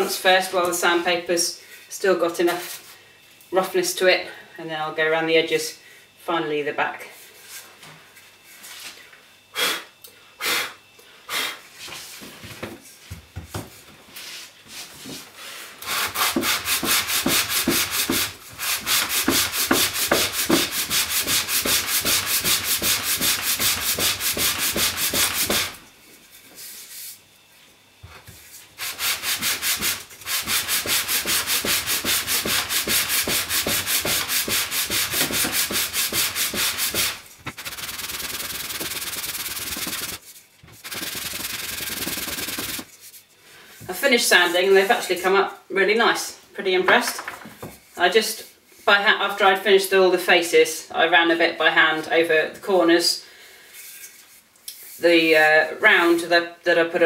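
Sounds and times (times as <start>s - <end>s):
wood sanding strokes: 15.8s - 25.8s, 28.4s - 43.3s.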